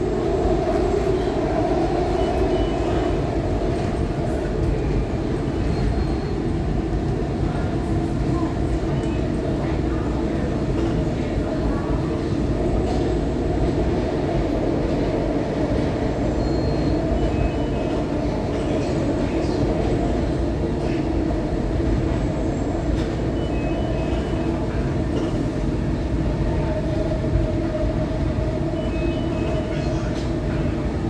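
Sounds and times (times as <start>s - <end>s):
train running on rails: 0.0s - 31.0s
faint high squeals: 5.6s - 6.5s.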